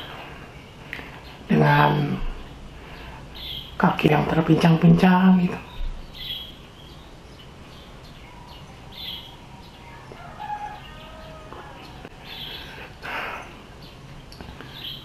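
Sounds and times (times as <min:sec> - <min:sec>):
small birds chirping: 0:00.0 - 0:15.0
faint rooster crowing: 0:08.2 - 0:12.8.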